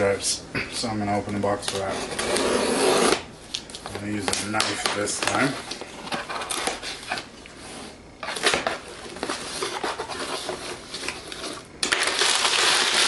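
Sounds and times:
knife slitting box tape: 11.3s - 13.0s.

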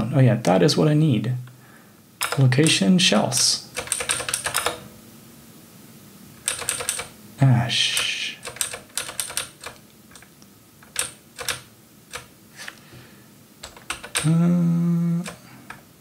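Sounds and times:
keyboard keys tapping: 3.8s - 4.8s, 6.5s - 7.1s, 8.5s - 12.3s, 13.6s - 14.5s
man humming: 7.4s - 8.4s, 14.1s - 15.8s.

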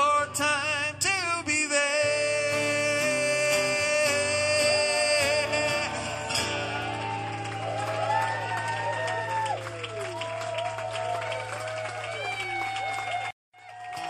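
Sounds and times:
man singing: 0.0s - 6.8s
strummed acoustic guitar: 0.0s - 7.5s
crowd cheering: 4.6s - 14.0s.

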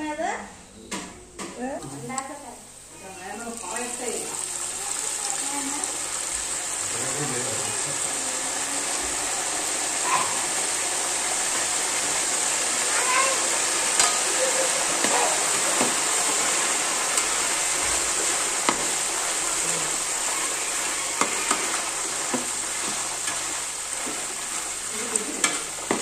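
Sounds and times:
deep-frying sizzle in oil: 2.1s - 26.0s.

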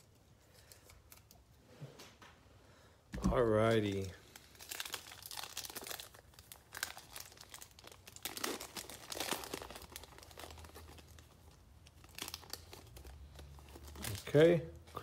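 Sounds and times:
foil wrapper crinkling: 3.3s - 14.5s.

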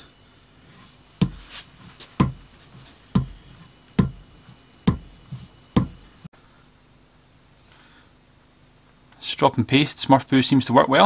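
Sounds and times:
chisel knocking on wooden strop: 2.2s - 2.5s, 4.0s - 4.2s, 4.9s - 5.1s, 5.8s - 6.0s.

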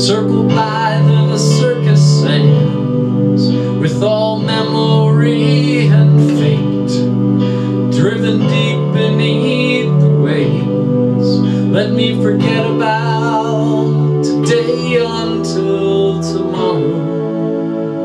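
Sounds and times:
synthesizer keyboard folk music: 0.0s - 18.0s.

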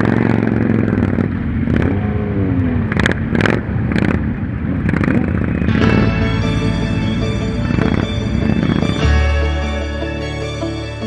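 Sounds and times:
motorcycle engines running: 0.0s - 11.0s
music: 5.7s - 11.0s.

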